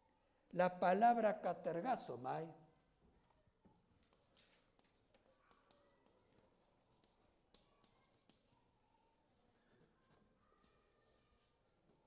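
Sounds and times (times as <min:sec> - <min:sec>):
chalk tap: 0:04.0 - 0:08.6
chalk scratching on chalkboard: 0:04.0 - 0:08.7, 0:09.5 - 0:12.0.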